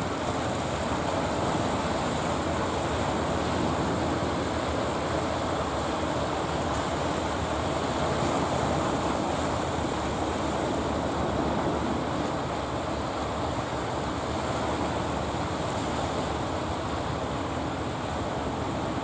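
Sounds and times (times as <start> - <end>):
boat engine rumble: 0.0 - 19.0
surf rushing: 0.0 - 19.0
wind: 0.0 - 19.0.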